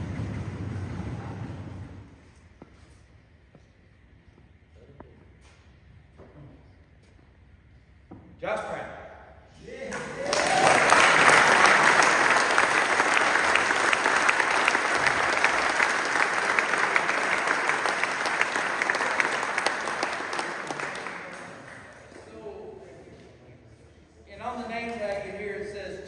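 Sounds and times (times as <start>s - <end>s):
audience clapping: 9.8s - 22.6s.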